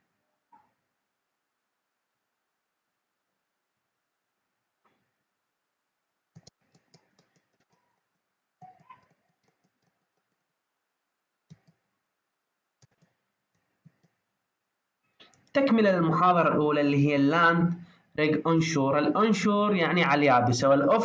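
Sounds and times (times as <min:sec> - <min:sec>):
faint computer clicks: 0:06.3 - 0:07.9, 0:11.5 - 0:11.8, 0:12.8 - 0:14.2.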